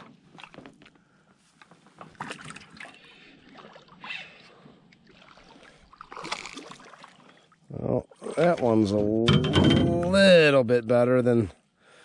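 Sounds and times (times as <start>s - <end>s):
water splashing and dripping: 2.1s - 7.5s
knocks on aluminium canoe: 9.2s - 10.2s.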